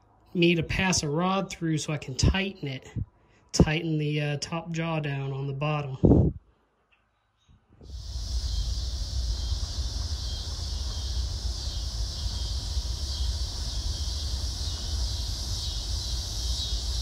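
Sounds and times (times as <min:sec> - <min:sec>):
wind rumbling on microphone: 0:06.0 - 0:06.4, 0:07.8 - 0:17.0
insect chorus: 0:07.8 - 0:17.0.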